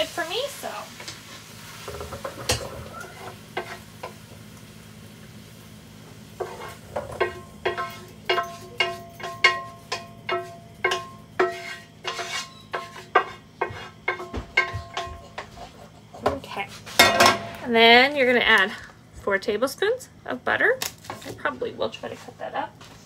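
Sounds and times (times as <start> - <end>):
metal spoon scraping a pan: 1.8 - 4.2, 6.4 - 17.6.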